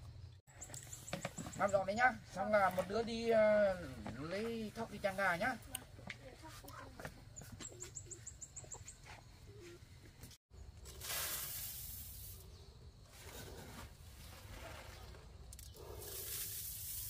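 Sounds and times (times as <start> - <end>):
bird chirping: 6.7 - 10.8
rice grain pouring into basket: 10.9 - 12.4, 16.0 - 17.0.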